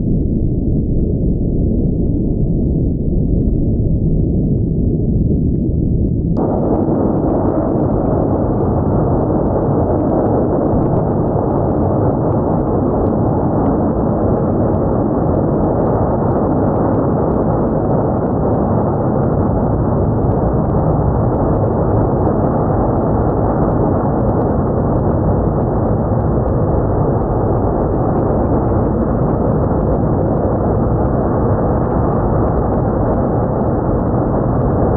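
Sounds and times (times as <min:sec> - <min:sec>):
low drone: 0:00.0 - 0:34.9
jet engines roaring: 0:06.4 - 0:17.1.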